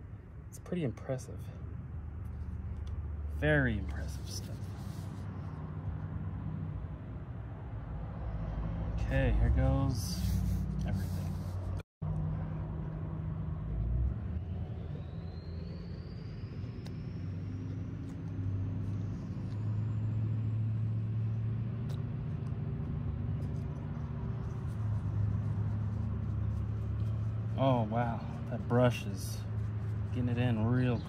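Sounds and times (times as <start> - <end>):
low motor hum: 10.5 - 31.0
faint high whine: 14.3 - 21.0.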